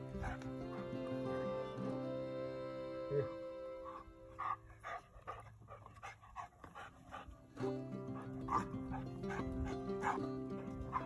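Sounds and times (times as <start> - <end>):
dog yipping and whining: 0.0 - 1.0, 3.8 - 6.1, 8.1 - 11.0
background music: 0.0 - 5.9, 7.1 - 11.0.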